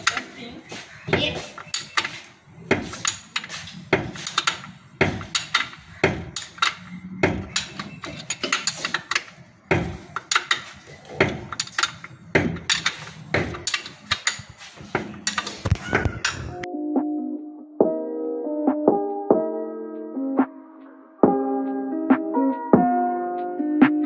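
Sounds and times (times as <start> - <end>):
metal tools clanking on engine: 0.0 - 16.6.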